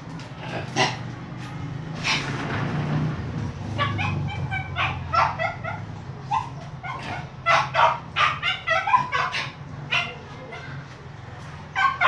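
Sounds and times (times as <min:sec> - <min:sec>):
puppy yelping: 0:03.6 - 0:10.8, 0:11.7 - 0:12.0.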